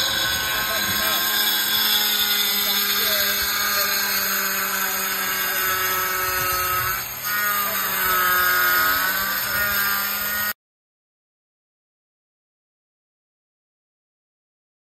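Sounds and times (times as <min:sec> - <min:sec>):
angle grinder cutting tile: 0:00.0 - 0:10.6.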